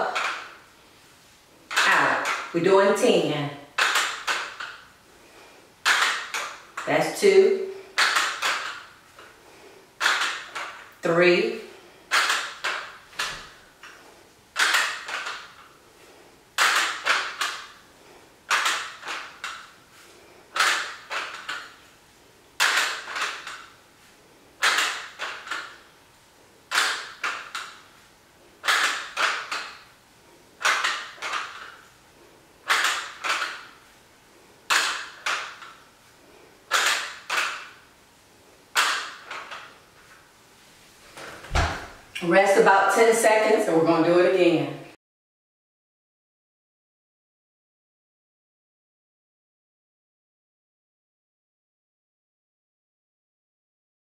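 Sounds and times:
dumbbell plates clicking: 0.1s - 0.6s, 1.7s - 2.6s, 3.8s - 6.9s, 7.8s - 11.1s, 11.8s - 15.8s, 16.6s - 21.9s, 22.6s - 23.8s, 24.6s - 25.9s, 26.7s - 28.0s, 28.6s - 30.0s, 30.6s - 32.0s, 32.6s - 33.9s, 34.7s - 37.9s, 38.7s - 39.9s.

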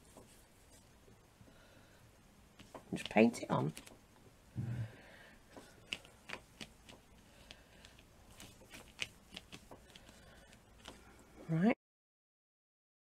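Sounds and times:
paintbrush strokes on plastic: 0.0s - 0.9s, 5.5s - 11.2s.

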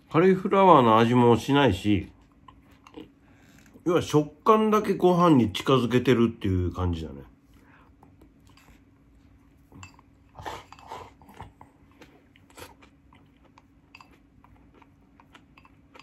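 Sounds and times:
faint steady hum: 0.0s - 16.0s
chewing with wet mouth sounds: 2.0s - 3.8s, 7.5s - 16.0s.

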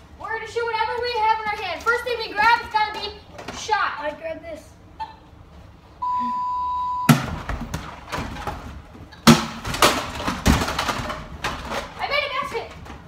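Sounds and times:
arcade game beep: 6.0s - 7.1s.

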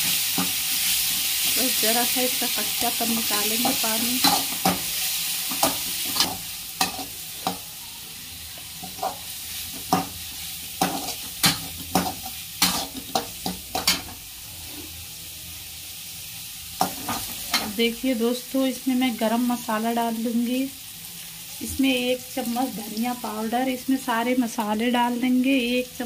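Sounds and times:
food sizzling in hot oil: 0.0s - 26.0s
metal spatula scraping a pan: 3.1s - 7.6s, 8.5s - 15.0s.

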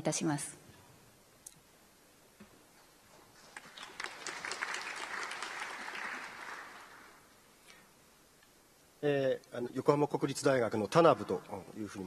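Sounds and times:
audience applause: 3.4s - 7.2s.

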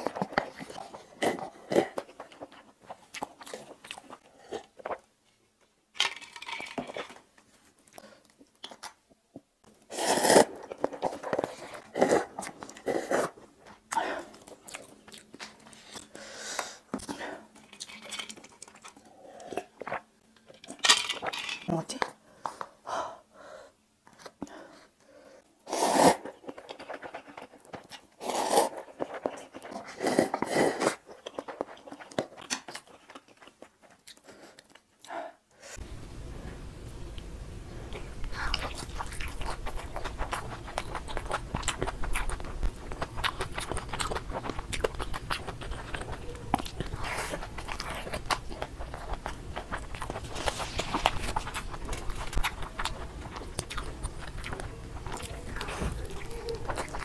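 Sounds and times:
crunchy chewing: 0.0s - 5.0s, 9.9s - 16.2s, 25.8s - 35.1s, 37.9s - 57.0s
low background noise: 0.0s - 57.0s
slurping noodles with chopsticks: 9.9s - 10.6s, 25.7s - 26.4s.

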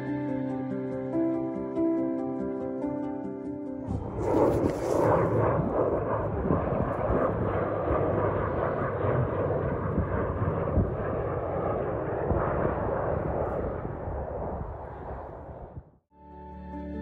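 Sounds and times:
turboprop aircraft flying low past: 3.9s - 15.8s.

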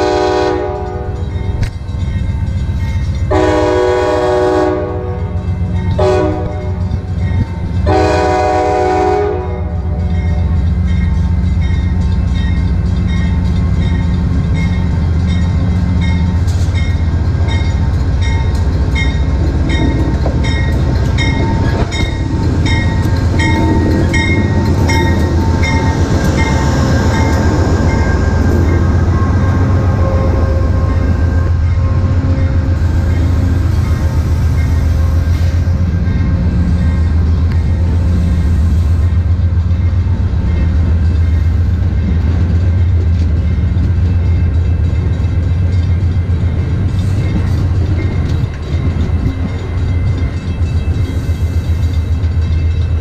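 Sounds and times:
locomotive horn blasts: 0.0s - 1.2s, 3.3s - 5.4s, 6.0s - 6.8s, 7.9s - 10.1s, 29.1s - 32.9s
locomotive bell ringing: 0.0s - 53.0s
train coaches rumbling past: 0.0s - 53.0s.

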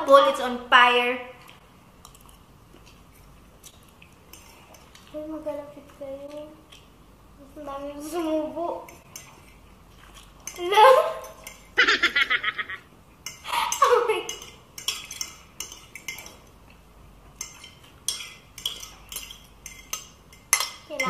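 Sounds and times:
utensils clinking against dishes: 8.9s - 11.8s, 13.2s - 16.5s, 17.4s - 21.0s
person crying out: 11.8s - 12.8s.

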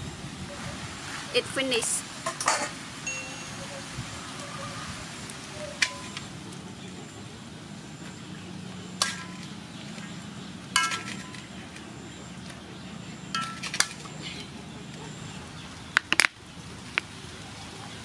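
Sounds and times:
metal utensil clinking on wok: 10.8s - 11.5s, 13.3s - 14.0s.

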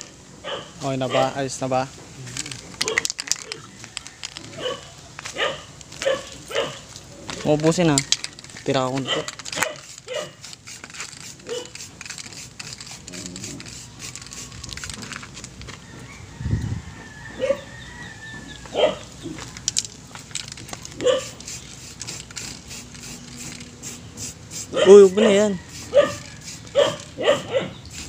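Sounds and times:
dog barking: 0.4s - 1.4s, 4.6s - 6.8s, 9.0s - 10.4s, 11.5s - 11.7s, 18.7s - 19.1s, 21.0s - 21.4s, 24.7s - 26.2s, 26.8s - 27.8s.

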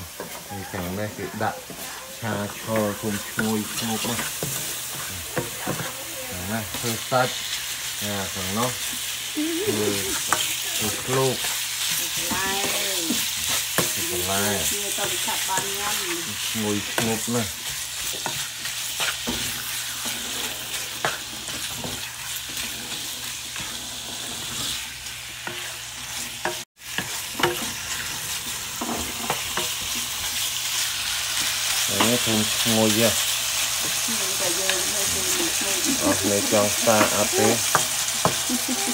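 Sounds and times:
meat sizzling in a frying pan: 0.0s - 38.9s
spatula scraping and tapping pan: 2.5s - 6.0s, 16.7s - 28.2s, 36.2s - 38.5s.

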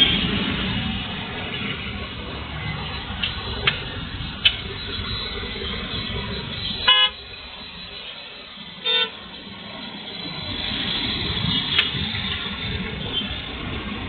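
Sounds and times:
vehicle road noise: 0.0s - 14.0s
vehicle horn toots: 6.4s - 7.3s, 8.8s - 9.2s.

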